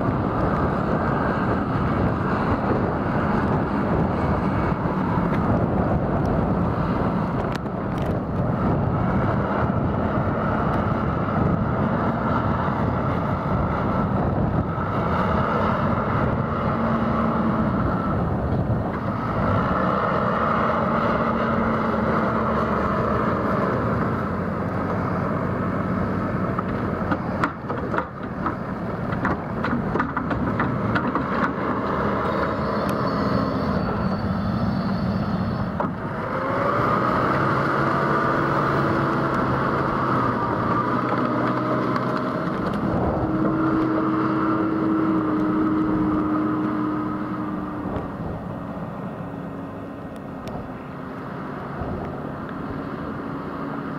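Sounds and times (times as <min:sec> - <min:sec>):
diesel loader engine working: 0:00.0 - 0:53.9
knocks and clatter: 0:26.5 - 0:32.0.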